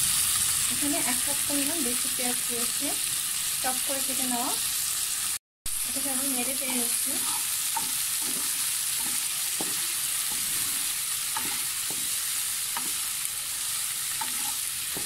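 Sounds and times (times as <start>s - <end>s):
onions sizzling in oil: 0.0s - 15.0s
spatula scraping pan: 6.2s - 15.0s.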